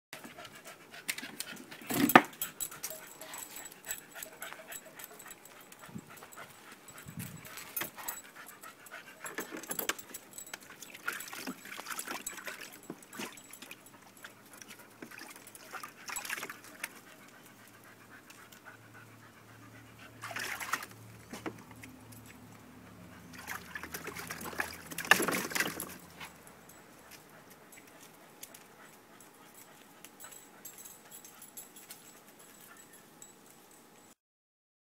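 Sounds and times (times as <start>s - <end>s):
dog splashing in water: 20.2s - 21.0s, 23.3s - 26.1s.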